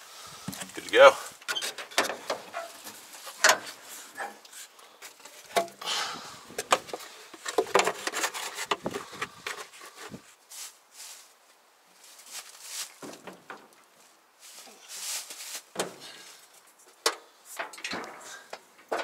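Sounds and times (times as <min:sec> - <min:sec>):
plastic funnel handled: 0:06.5 - 0:10.2
clothing rustle: 0:08.1 - 0:13.2, 0:13.9 - 0:16.7.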